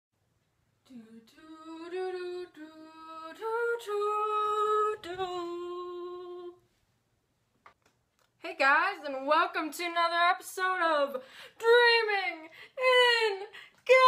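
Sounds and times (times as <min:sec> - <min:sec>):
woman singing long held notes: 0:00.8 - 0:06.6.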